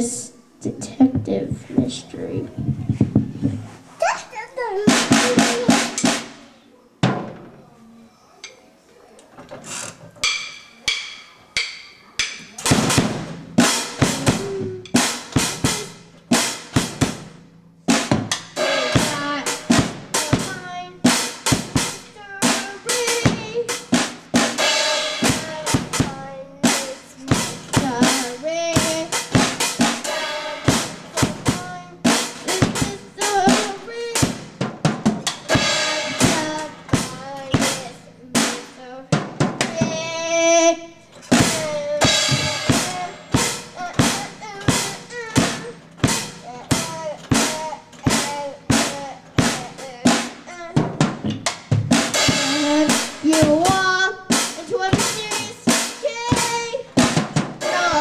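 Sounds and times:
drum kit being played: 0.0 - 3.9, 4.6 - 7.5, 9.8 - 58.0
cymbal: 10.2 - 34.4, 35.4 - 38.8.

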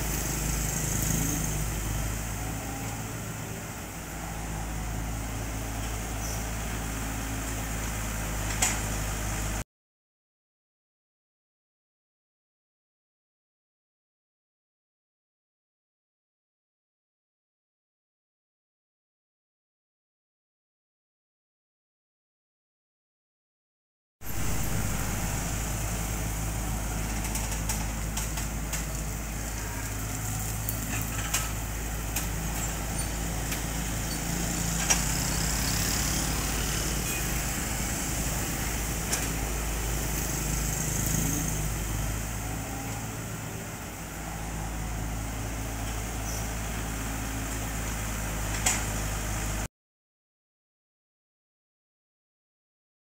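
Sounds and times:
excavator diesel engine running: 0.0 - 9.6, 24.2 - 49.7.

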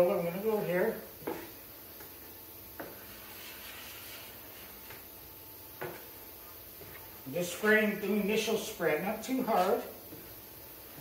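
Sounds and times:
glue spreader rubbing on wood: 2.9 - 5.0.

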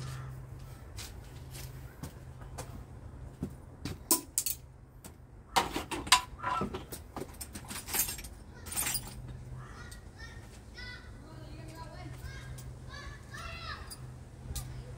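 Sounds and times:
metal tools clinking and knocking: 4.1 - 4.6, 5.6 - 9.4.

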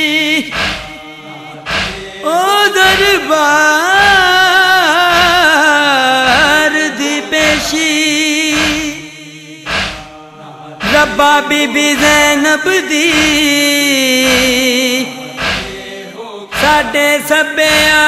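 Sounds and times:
man singing a lament: 0.0 - 18.0
faint steady beat: 0.4 - 1.0, 1.7 - 2.1, 7.4 - 7.8, 8.5 - 9.0, 9.7 - 10.1, 13.1 - 13.6, 14.2 - 14.7, 15.4 - 15.9.

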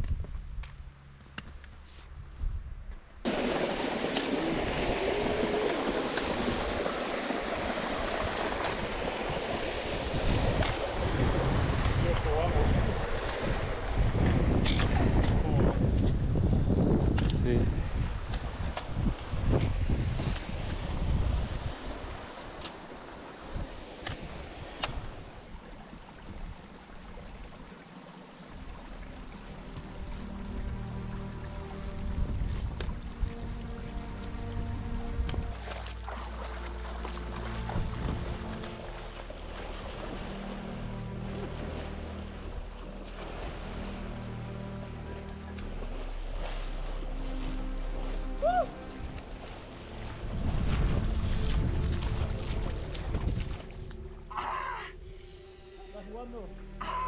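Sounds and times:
stream water rushing: 3.2 - 57.0
wind buffeting microphone: 3.8 - 22.6, 31.8 - 35.6, 37.6 - 38.7, 50.2 - 53.9.

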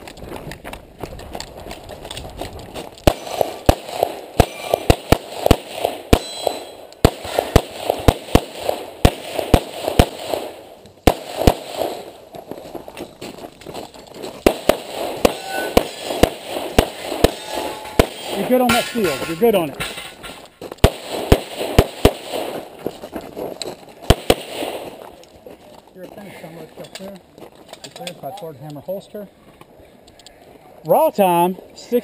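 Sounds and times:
rapid pistol shots: 3.0 - 12.2, 14.4 - 19.2, 20.8 - 22.7, 24.0 - 25.0.

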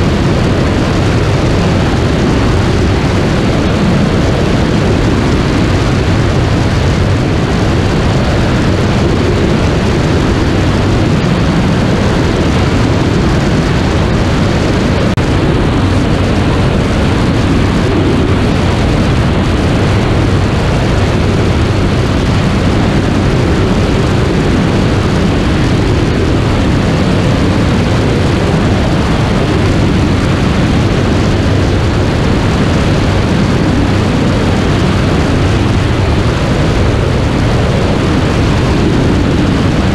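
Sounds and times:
aircraft propeller engine drone: 0.0 - 39.9
wind rushing on microphone: 0.0 - 39.9.

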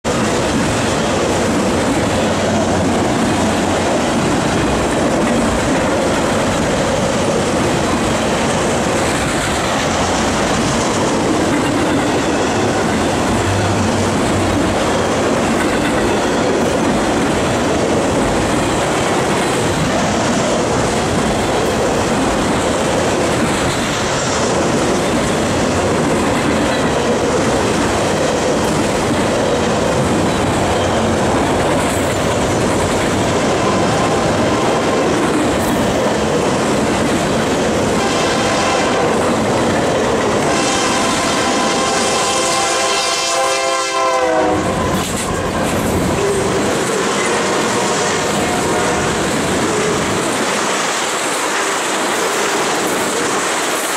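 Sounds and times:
train wheels on rails: 0.0 - 53.9.

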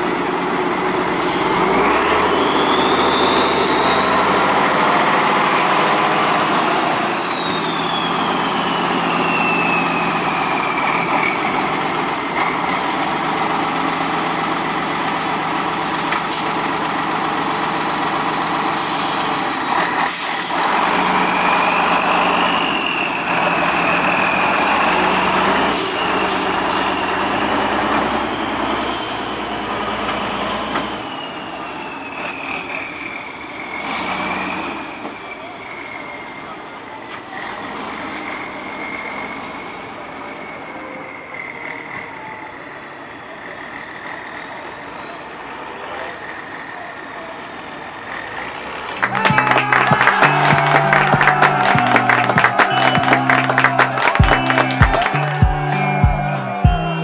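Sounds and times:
truck diesel engine revving: 0.0 - 36.7, 37.4 - 40.7.

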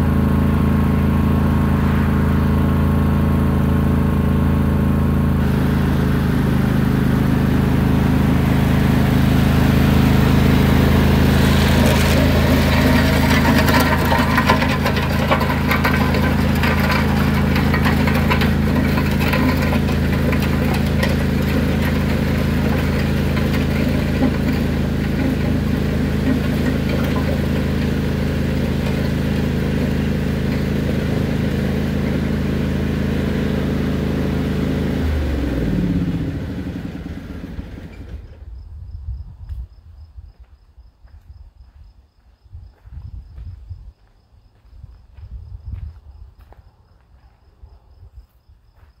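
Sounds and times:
lawn tractor engine running: 0.0 - 38.5
gravel scraping and clattering: 5.3 - 38.3.

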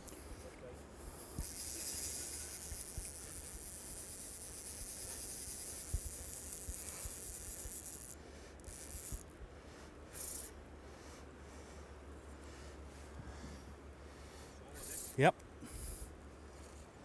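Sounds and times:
fishing reel drag buzzing: 1.1 - 9.3, 10.1 - 10.5, 14.8 - 15.2.

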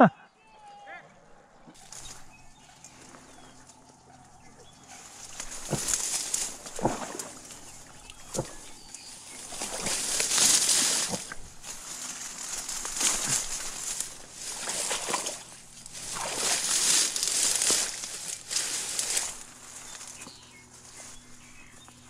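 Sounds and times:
dry reeds rustling: 1.8 - 22.0
dull thuds underfoot: 5.2 - 11.8
sloshing steps in shallow water: 5.3 - 11.8, 12.6 - 19.4.

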